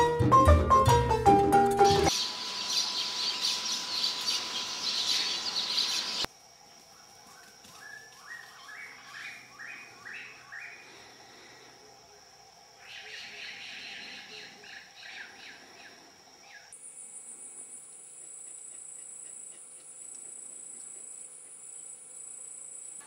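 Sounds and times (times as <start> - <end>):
busy bird chirping: 2.1 - 6.3, 7.8 - 11.0, 12.8 - 16.7.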